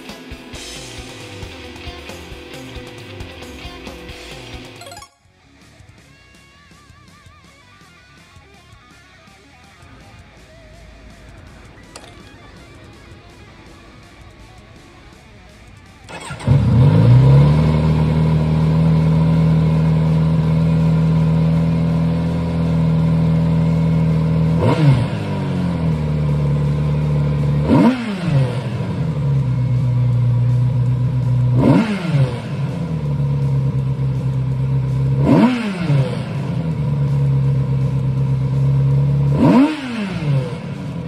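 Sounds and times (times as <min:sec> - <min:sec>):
motorcycle engine idling: 0:05.9 - 0:41.0
motorcycle engine revving: 0:09.2 - 0:41.0.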